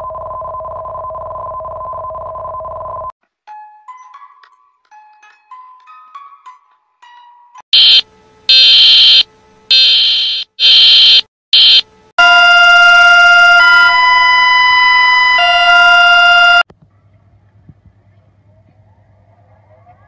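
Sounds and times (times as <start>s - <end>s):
long buzzy electronic alert tone: 7.8s - 16.6s
shrill electronic alert beeps: 7.8s - 16.6s.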